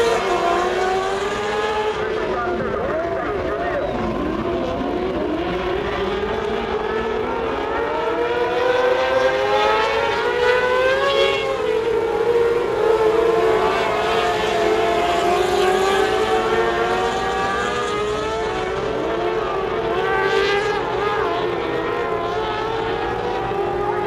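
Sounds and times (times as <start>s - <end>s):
racing car engines at high revs: 0.0s - 24.0s.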